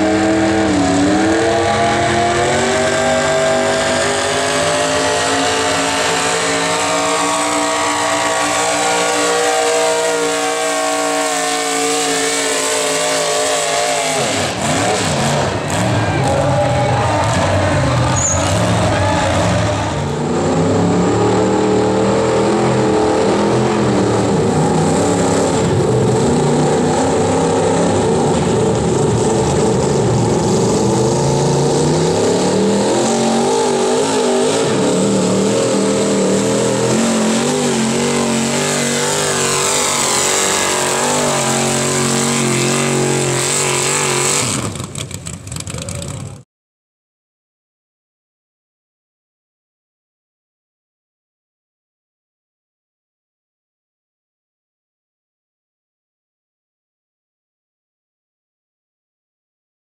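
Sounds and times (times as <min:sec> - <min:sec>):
engines revving under load: 0:00.0 - 0:46.4.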